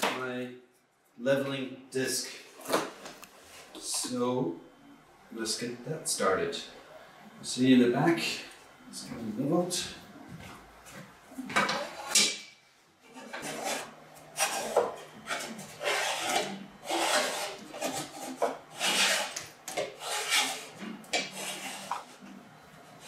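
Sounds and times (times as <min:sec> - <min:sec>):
plastic disc scraping on wood: 0:13.1 - 0:22.3.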